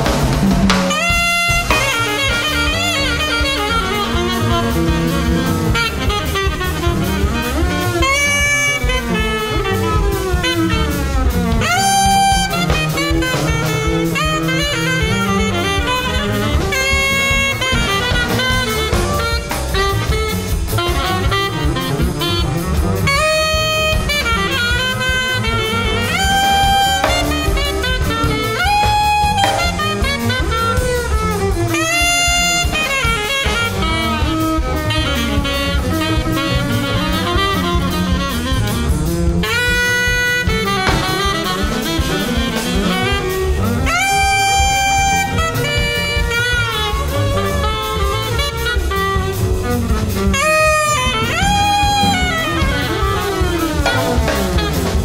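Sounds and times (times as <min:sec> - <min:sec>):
alto saxophone: 0:00.0 - 0:55.0
busy drum kit: 0:00.0 - 0:55.0
double basses: 0:00.0 - 0:55.0.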